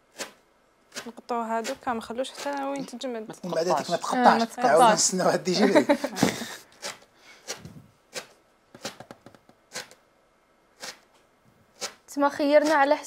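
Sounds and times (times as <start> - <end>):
pastry cutter crunching crisp base: 0.1 - 2.9, 11.8 - 12.9.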